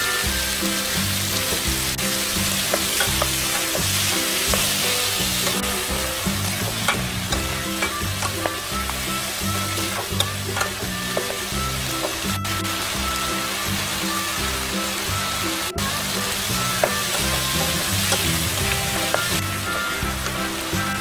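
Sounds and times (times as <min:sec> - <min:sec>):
vegetables sizzling in frying pan: 0:00.0 - 0:21.0
spatula knocking against pan: 0:09.9 - 0:12.2.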